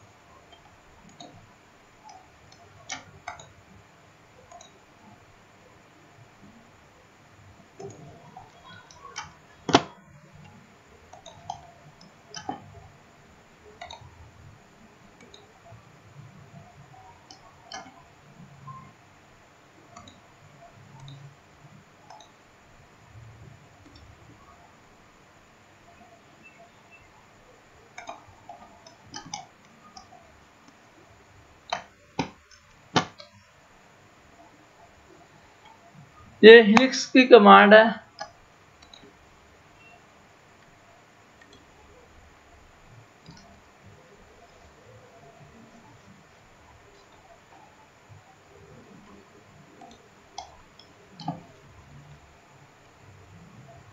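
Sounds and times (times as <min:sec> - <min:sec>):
computer mouse clicks: 0:00.4 - 0:03.8, 0:04.4 - 0:05.2, 0:07.7 - 0:13.0, 0:13.8 - 0:19.0, 0:19.9 - 0:21.4, 0:22.0 - 0:22.4, 0:23.7 - 0:24.5, 0:25.9 - 0:30.9, 0:31.6 - 0:33.5, 0:38.1 - 0:40.0, 0:41.4 - 0:42.0, 0:42.9 - 0:52.2.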